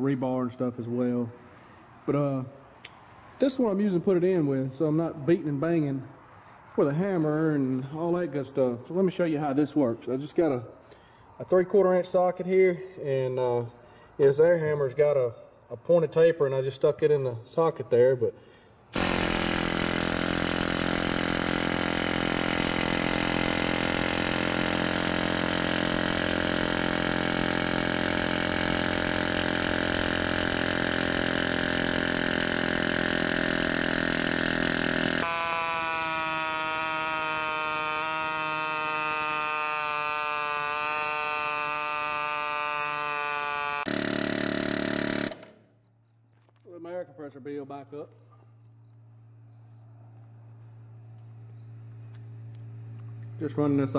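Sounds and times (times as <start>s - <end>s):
air hammer on metal: 18.9s - 45.6s.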